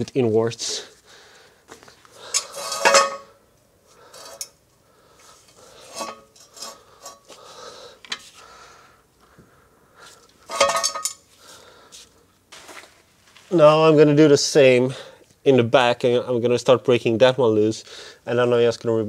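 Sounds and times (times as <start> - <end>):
metal tools clanking: 2.2 - 3.4, 4.1 - 4.6, 5.8 - 7.3, 10.4 - 11.2.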